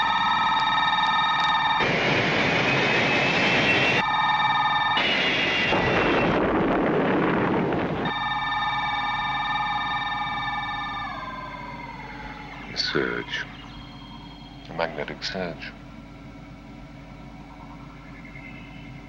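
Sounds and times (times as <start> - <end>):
steady electronic hum: 0.0 - 19.0
deep rumbling blast: 5.0 - 8.2.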